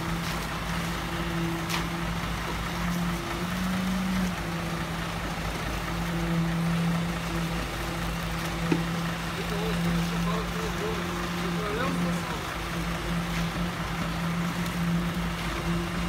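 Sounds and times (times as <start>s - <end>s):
concrete mixer truck humming: 0.0s - 16.0s.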